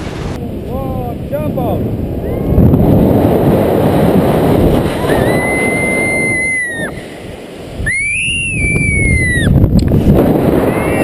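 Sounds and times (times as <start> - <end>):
wind rushing over microphone: 0.0 - 11.0
woman screaming: 5.0 - 7.0.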